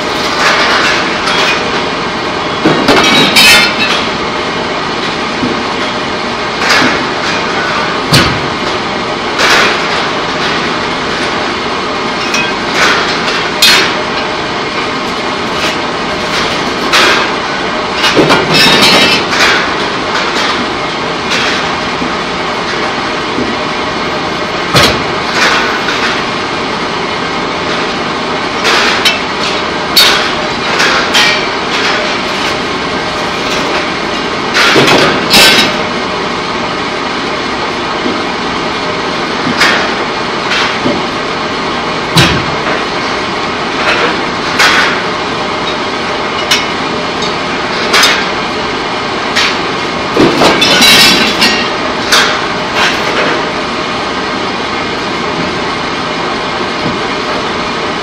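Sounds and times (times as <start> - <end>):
loud metallic clanks and bangs: 0.0 - 4.4, 12.1 - 23.7, 24.4 - 26.4, 28.6 - 36.1, 42.1 - 43.1, 49.2 - 53.6
industrial machinery din: 0.0 - 58.0.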